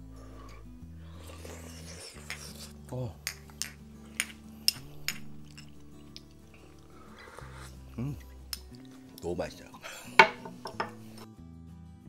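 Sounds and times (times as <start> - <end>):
soft background music: 0.0 - 12.0
spoon clinking ceramic dish: 10.2 - 11.0.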